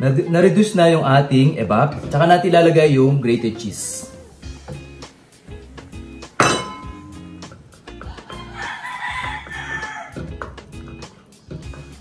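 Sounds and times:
background music: 0.0s - 12.0s
glass bowl clinking on saucepan: 6.4s - 7.4s
rooster crowing: 8.1s - 10.3s.

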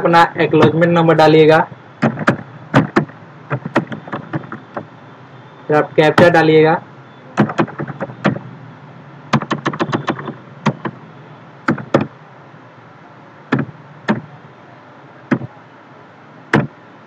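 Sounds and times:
keyboard key taps: 11.7s - 12.1s.

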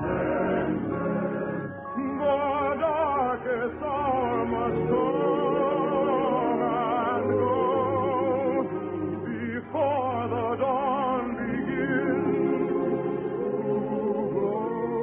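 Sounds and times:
operetta singing with orchestra: 0.0s - 15.0s.

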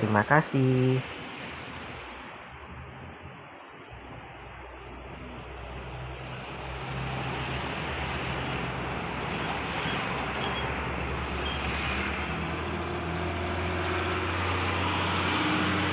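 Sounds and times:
diesel trucks: 0.0s - 15.9s
truck engine approaching: 4.6s - 15.9s
motorcycles running: 8.2s - 15.9s.

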